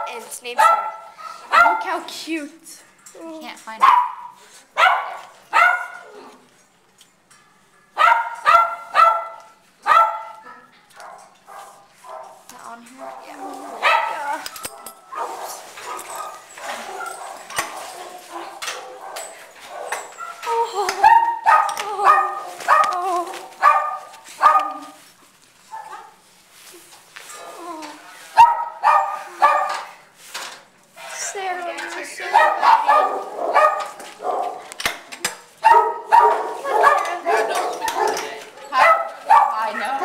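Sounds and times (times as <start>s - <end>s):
dog barking: 0.6s - 2.0s, 3.8s - 6.1s, 7.9s - 25.0s, 25.7s - 26.2s, 28.4s - 29.9s, 32.3s - 34.7s, 35.6s - 40.0s.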